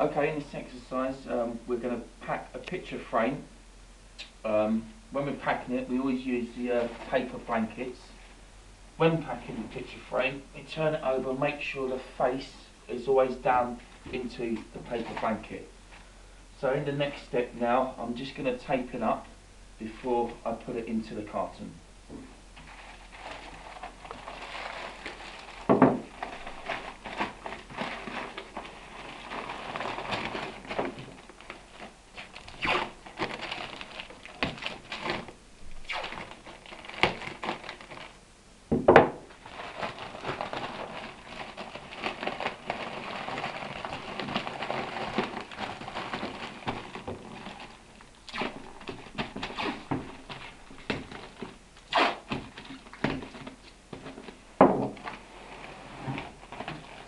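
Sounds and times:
packing tape pulled off roll: 0:22.6 - 0:38.2, 0:39.3 - 0:53.7
paper crinkling and rustling: 0:22.6 - 0:38.2, 0:39.3 - 0:57.0.

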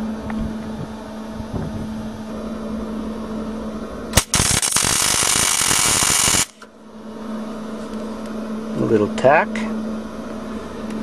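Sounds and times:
steady low hum: 0:00.0 - 0:11.0
welding arc crackling: 0:04.2 - 0:06.7
welding arc striking crack: 0:04.2 - 0:06.7.

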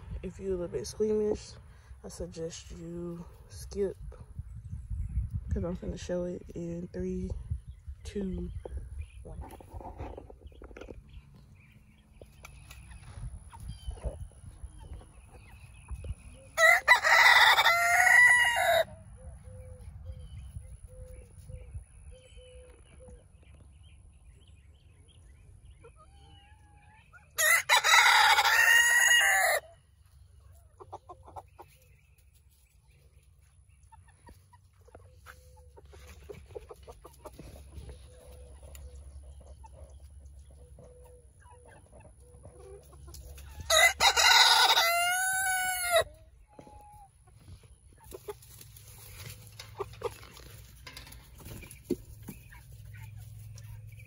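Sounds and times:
hens clucking: 0:08.6 - 0:21.7, 0:25.7 - 0:32.6, 0:33.2 - 0:54.0.

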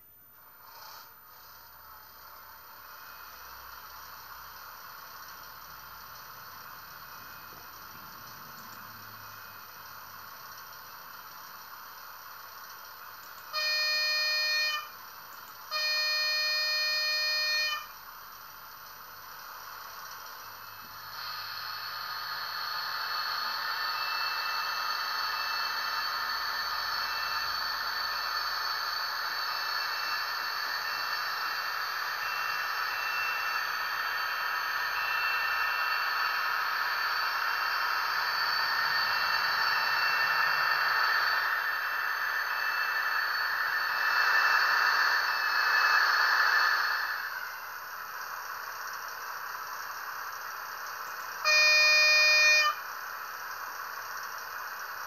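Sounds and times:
model diesel engine sound: 0:00.0 - 0:55.0
model locomotive horn: 0:13.4 - 0:15.0, 0:15.6 - 0:18.0, 0:21.1 - 0:43.3, 0:51.3 - 0:53.0.

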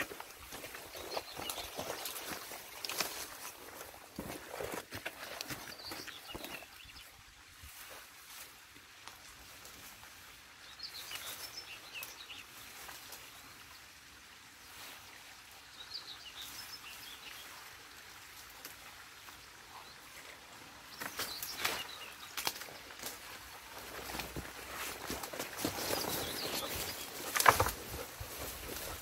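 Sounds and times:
sticks rustling and snapping: 0:21.0 - 0:23.4, 0:24.0 - 0:28.4
bird chirping: 0:25.6 - 0:28.9.

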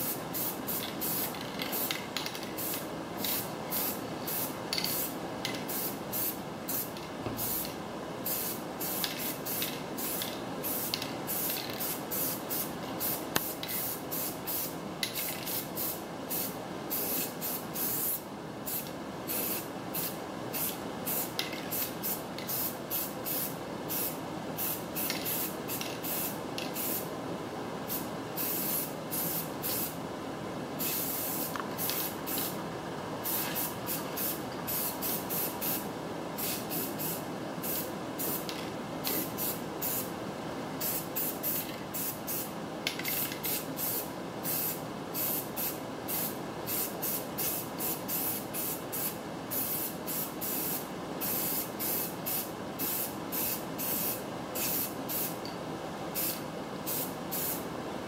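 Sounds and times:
spray can hissing: 0:30.8 - 0:32.6, 0:33.2 - 0:35.8.

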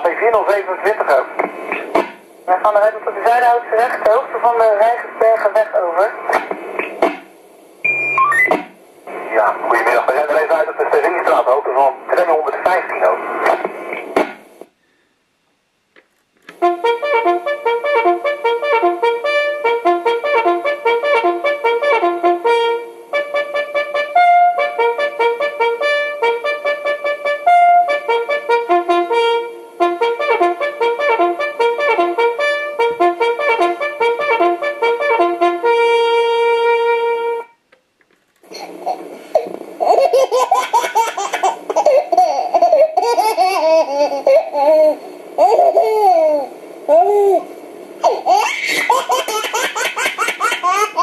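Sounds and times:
trumpet-like brass melody: 0:16.6 - 0:37.6.

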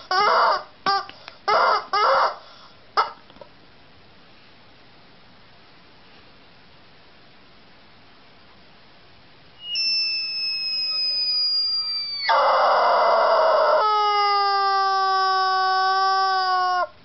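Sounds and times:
rubber chicken toy squawking: 0:00.0 - 0:02.4, 0:03.0 - 0:03.2, 0:09.6 - 0:17.0.

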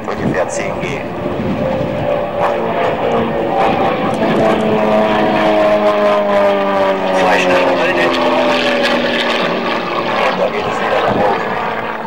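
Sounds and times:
propeller plane engine droning: 0:00.0 - 0:12.0.

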